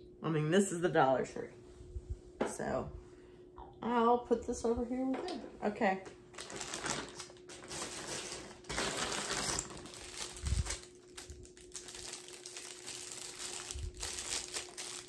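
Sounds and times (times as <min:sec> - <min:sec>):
plastic packaging crinkling: 0:06.3 - 0:15.0.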